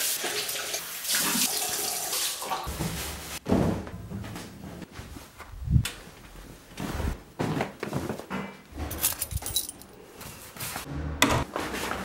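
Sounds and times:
water running from a tap into a sink: 0:00.0 - 0:02.7.

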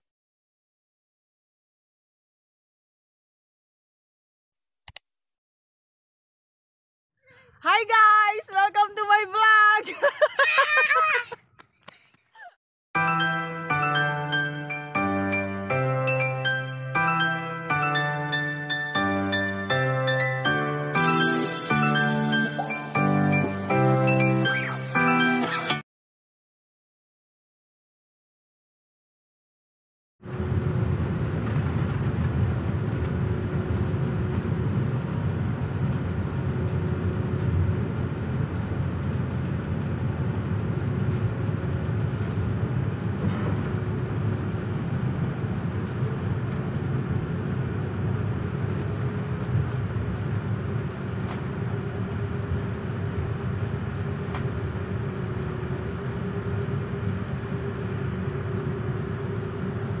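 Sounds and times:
jet engines and rolling gear rumble: 0:13.0 - 0:25.8, 0:30.2 - 1:00.0.

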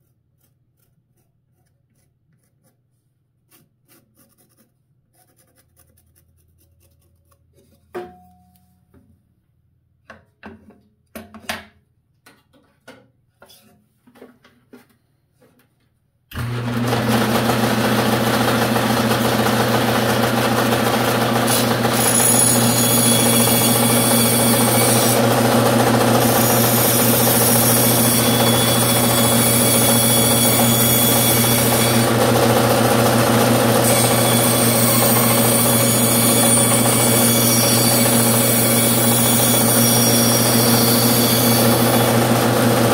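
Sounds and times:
bandsaw cutting wood: 0:16.3 - 0:42.9.

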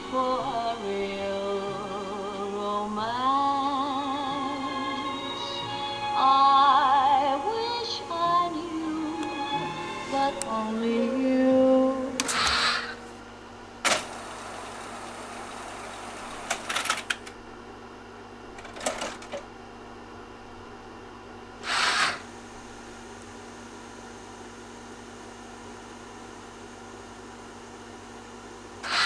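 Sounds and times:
steady hum: 0:00.0 - 0:29.0
cassette deck mechanisms clacking: 0:13.8 - 0:17.4, 0:18.5 - 0:19.5.

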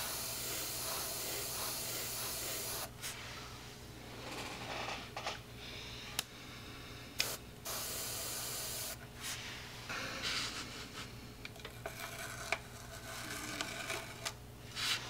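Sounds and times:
airbrush spraying hiss: 0:00.0 - 0:02.9, 0:07.2 - 0:09.0.

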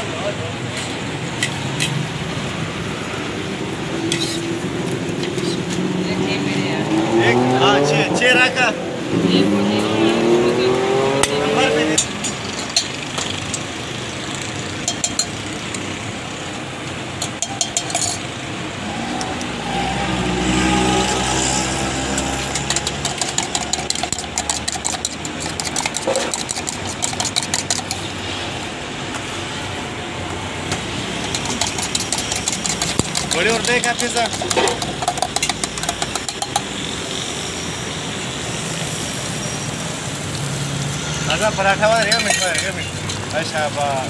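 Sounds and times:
street traffic: 0:00.0 - 0:44.0
vehicle passing: 0:01.6 - 0:12.4, 0:18.4 - 0:44.0
spoon clinking in metal mug: 0:12.0 - 0:13.6, 0:14.8 - 0:15.4, 0:17.2 - 0:18.3, 0:22.0 - 0:28.1, 0:31.2 - 0:36.8, 0:41.9 - 0:43.2.

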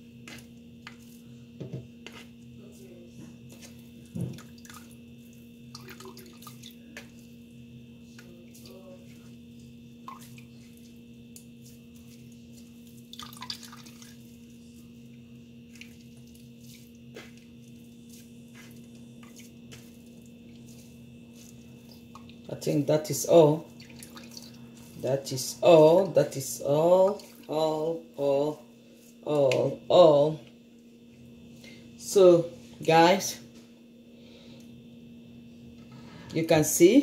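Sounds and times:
juice dripping into a jug: 0:04.4 - 0:06.8, 0:13.0 - 0:14.3.

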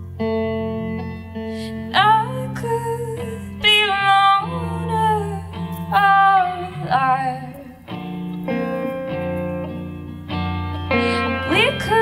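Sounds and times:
electric guitar chords: 0:00.0 - 0:12.0
woman singing: 0:01.6 - 0:07.9, 0:10.9 - 0:12.0.

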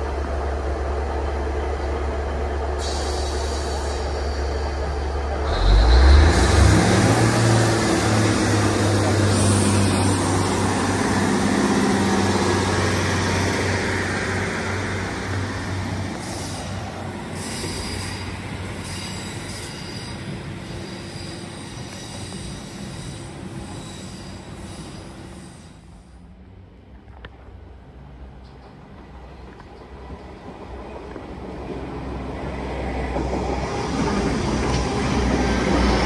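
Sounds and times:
rail noise: 0:00.0 - 0:36.0
train diesel engine droning: 0:00.0 - 0:36.0
wheels squealing on rails: 0:02.7 - 0:26.2.

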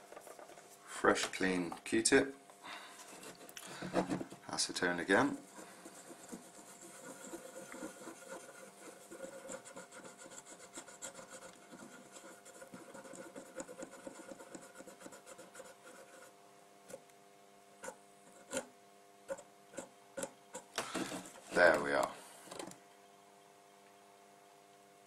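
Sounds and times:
faint steady hum: 0:00.0 - 0:25.0
cotton swab scrubbing circuit board: 0:03.0 - 0:16.3, 0:17.8 - 0:18.7.

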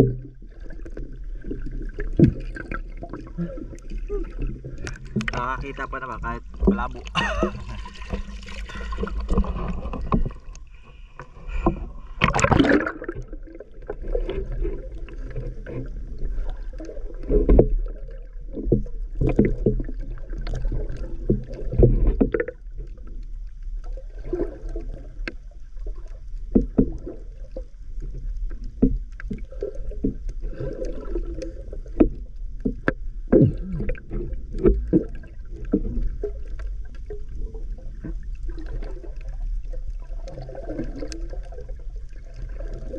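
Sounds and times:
low underwater rumble: 0:00.0 - 0:42.9
underwater water sloshing: 0:00.0 - 0:42.9
loud underwater burst: 0:02.2 - 0:10.2, 0:11.5 - 0:13.6.

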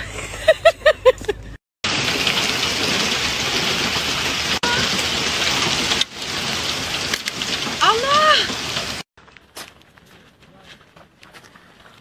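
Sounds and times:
rain falling steadily: 0:01.8 - 0:09.0.

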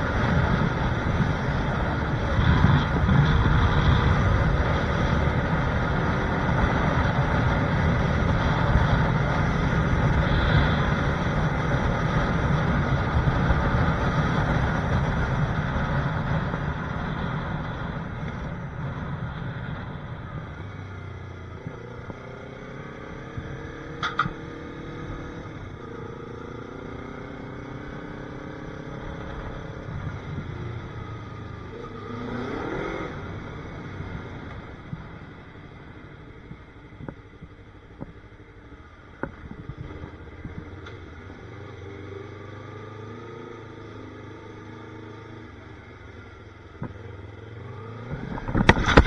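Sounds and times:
wind and road noise: 0:00.0 - 0:49.0
sharp click: 0:24.0 - 0:24.4
motorcycle engine running: 0:33.1 - 0:49.0.

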